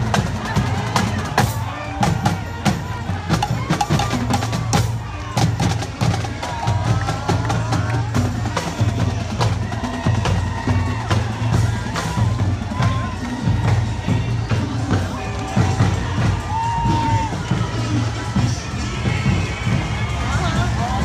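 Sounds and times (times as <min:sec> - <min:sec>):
snare and bass drums: 0:00.0 - 0:21.0.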